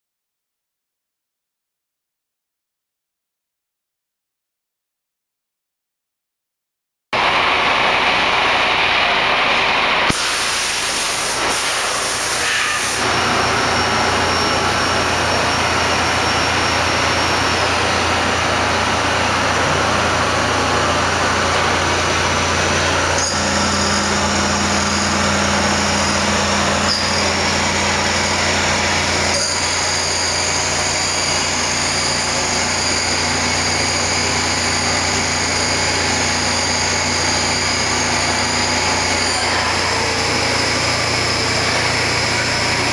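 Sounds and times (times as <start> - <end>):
high machine whines: 7.2 - 42.9
low machine tone: 7.2 - 42.9
milling machine whir and hum: 7.2 - 42.9.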